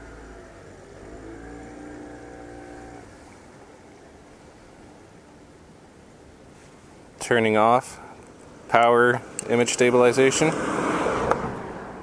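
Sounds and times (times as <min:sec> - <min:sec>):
outboard motor running: 0:00.0 - 0:05.7
faint steady hiss: 0:00.0 - 0:10.4.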